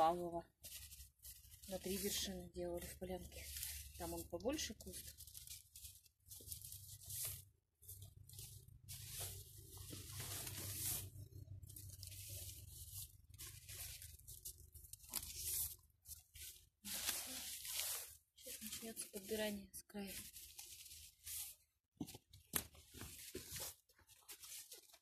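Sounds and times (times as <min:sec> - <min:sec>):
leaves rustling in hands: 0:00.0 - 0:25.0
low steady rumble: 0:05.0 - 0:15.1.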